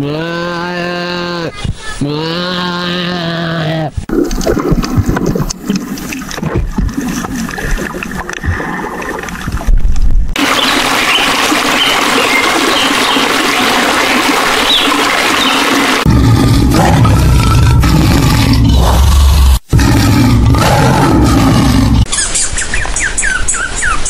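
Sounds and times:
water bubbling underwater: 4.1s - 22.1s
underwater clicks: 4.2s - 10.4s.

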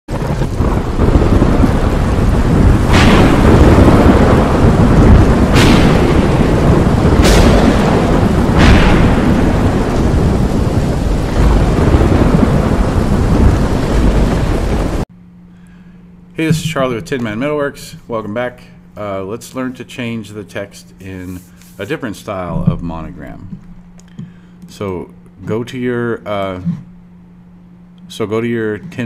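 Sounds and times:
sharp thunder cracks: 0.1s - 15.0s
low thunder rumbling: 0.1s - 15.1s
rain: 0.1s - 15.1s.

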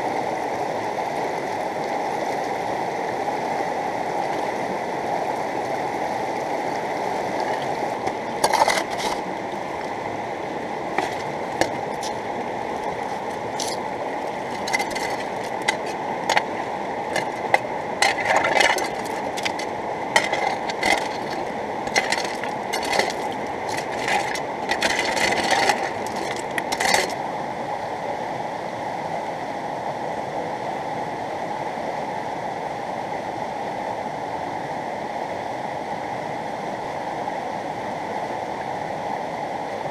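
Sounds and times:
river rushing: 5.8s - 27.2s
stones clattering on metal hopper: 8.4s - 9.2s, 11.0s - 12.2s, 12.8s - 27.2s
shovel scraping gravel: 8.4s - 9.3s, 11.0s - 12.2s, 12.8s - 27.2s.

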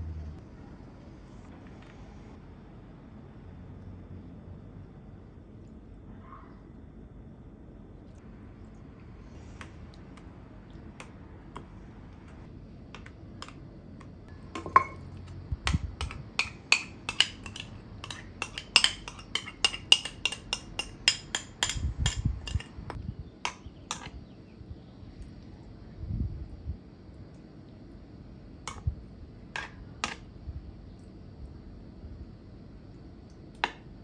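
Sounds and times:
utensils clinking against dishes: 14.6s - 15.2s, 16.0s - 22.8s.

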